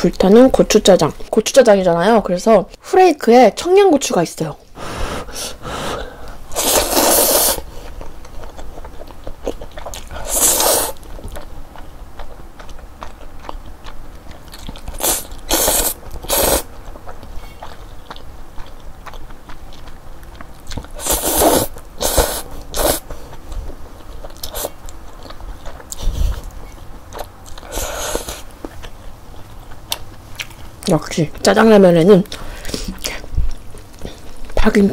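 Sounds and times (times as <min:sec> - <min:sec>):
noisy noodle slurping: 0:05.0 - 0:07.7, 0:10.1 - 0:11.0, 0:14.9 - 0:16.7, 0:21.0 - 0:23.1
wet chewing: 0:05.6 - 0:34.9.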